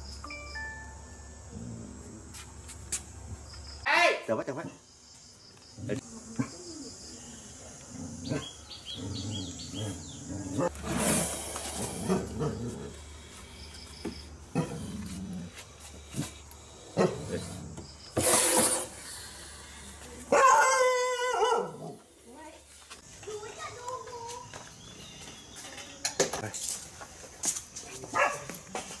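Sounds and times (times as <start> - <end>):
snake hissing: 10.4 - 13.5.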